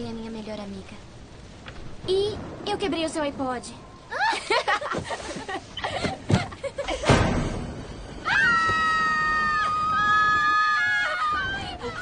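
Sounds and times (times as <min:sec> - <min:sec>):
loud crash: 0:06.9 - 0:10.8
girls screaming: 0:08.2 - 0:12.0.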